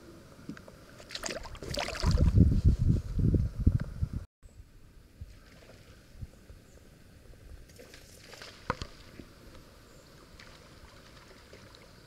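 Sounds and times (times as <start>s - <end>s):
river ambience: 4.5s - 12.0s.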